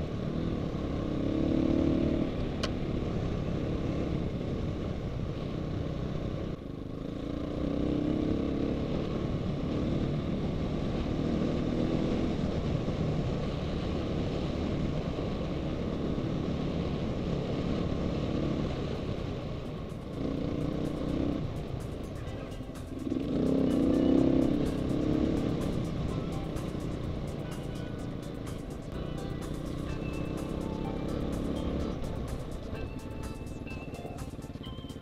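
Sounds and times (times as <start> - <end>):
dirt bike engine revving: 20.1 - 32.6.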